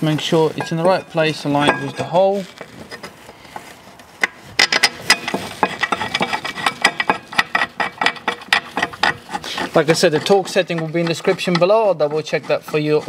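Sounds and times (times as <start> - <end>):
hand ratchet clicking: 4.2 - 11.8.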